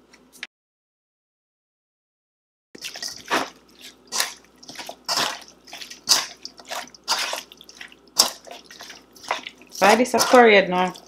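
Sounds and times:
metal spoon mixing in steel bowl: 2.8 - 11.0.

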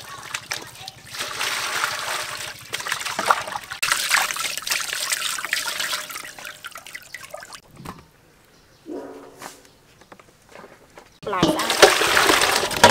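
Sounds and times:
water splashing in metal basin: 0.0 - 7.6, 11.3 - 12.9.

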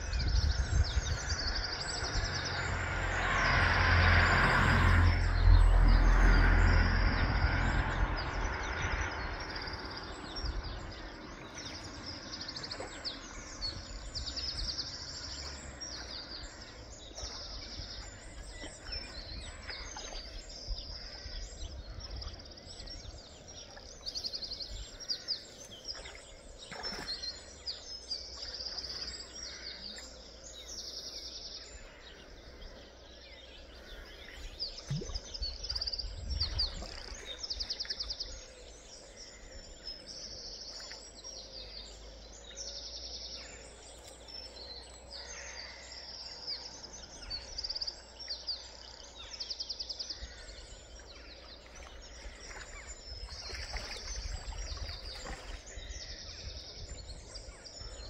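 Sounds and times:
loud low rumbling: 0.0 - 23.3
songbirds chirping and singing: 0.0 - 58.0.

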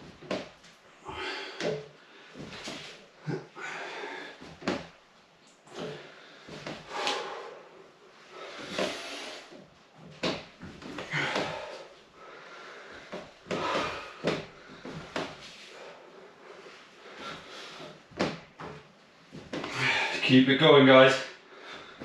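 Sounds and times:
person exhaling forcefully: 11.0 - 11.9, 13.5 - 15.0.

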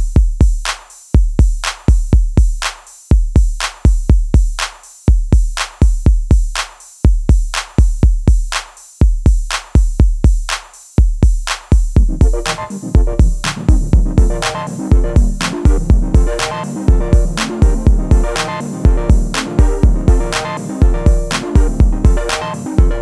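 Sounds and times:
drum machine beat: 0.0 - 23.0.

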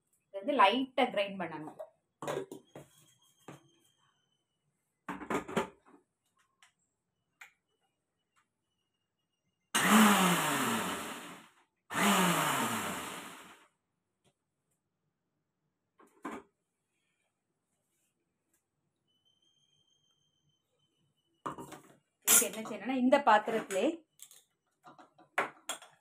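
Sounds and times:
mixer grinder motor whine: 9.8 - 13.6.

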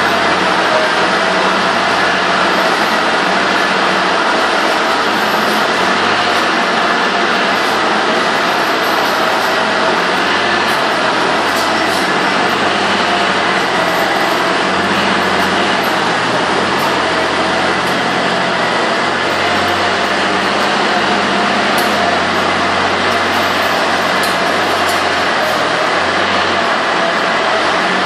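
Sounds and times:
feed mixer wagon droning: 0.0 - 28.0.

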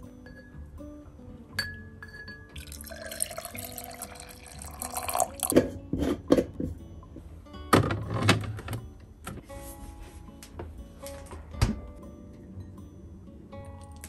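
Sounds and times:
fruit clinking against glass: 1.6 - 5.8
syrup pouring into glass jar: 2.6 - 5.5.

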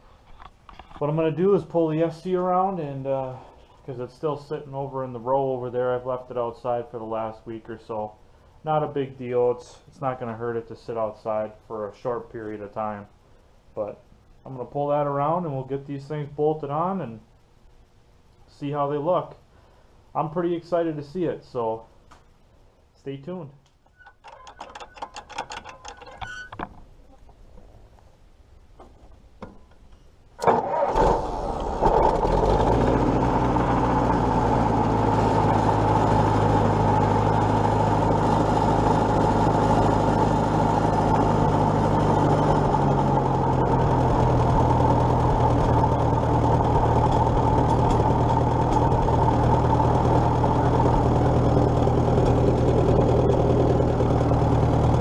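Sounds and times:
controls clicking and rattling: 24.2 - 26.3
tractor engine starting and idling: 30.4 - 55.0.

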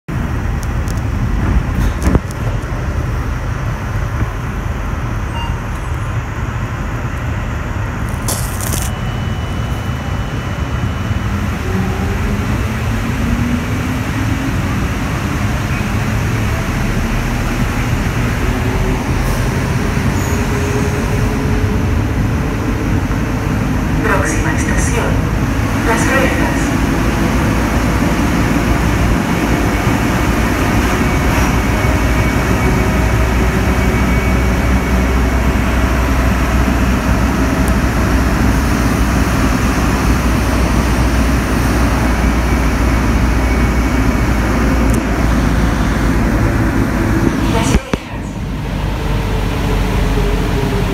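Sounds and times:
metro train rumble: 0.1 - 50.9
short high beep: 5.3 - 5.9.

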